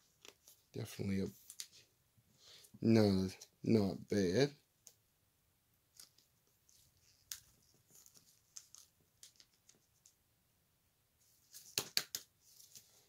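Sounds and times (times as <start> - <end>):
cards rustling: 0.2 - 1.9, 5.9 - 10.2, 11.3 - 13.0.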